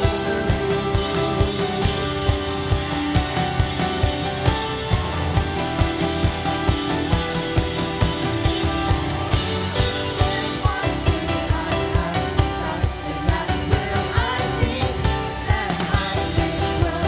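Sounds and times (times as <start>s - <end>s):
voices singing: 0.0s - 2.6s, 9.8s - 17.0s
drum kit steady beat: 0.0s - 17.0s
guitars: 0.0s - 17.0s.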